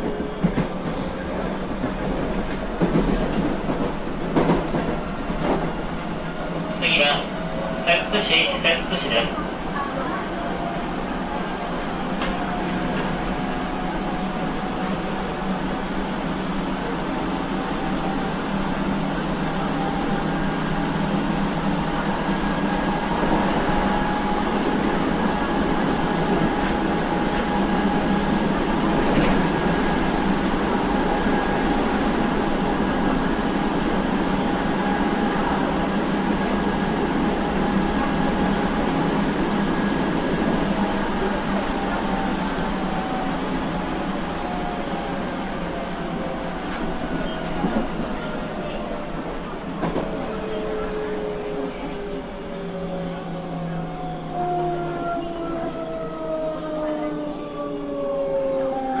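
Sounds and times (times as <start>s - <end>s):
train wheels rumbling on rail: 0.0s - 57.2s.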